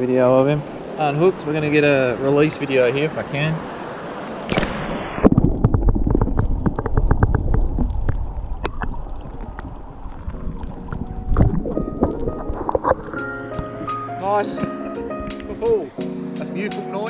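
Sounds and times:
muffled underwater river rumble: 5.0 - 14.2.

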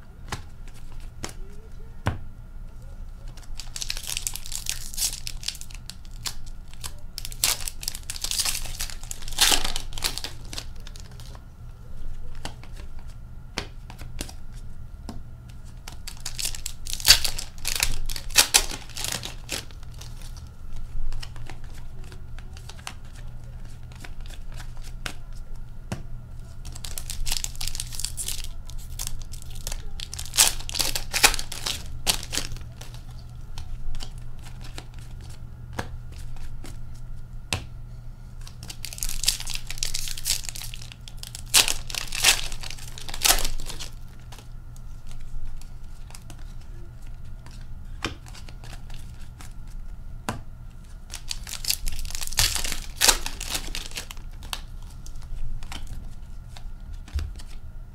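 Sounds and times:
foil wrappers tearing and crinkling: 3.3 - 11.4, 15.8 - 25.3, 26.6 - 35.4, 38.4 - 49.6, 50.8 - 57.6.

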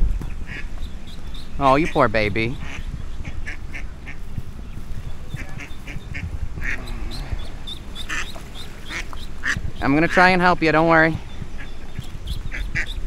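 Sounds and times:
duck quacking: 1.8 - 4.2, 5.4 - 10.4, 11.6 - 13.0.

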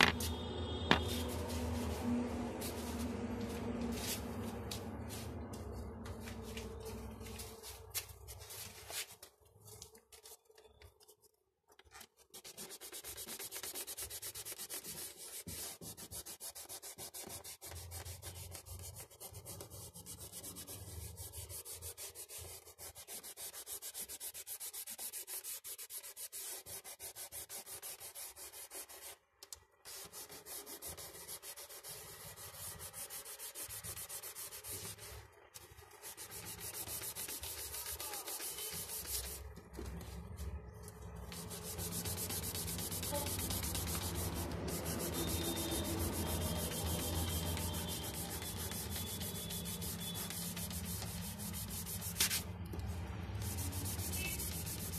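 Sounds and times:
fingers rubbing pastel on paper: 12.2 - 29.2, 29.8 - 39.8, 41.1 - 52.4, 53.3 - 54.9.

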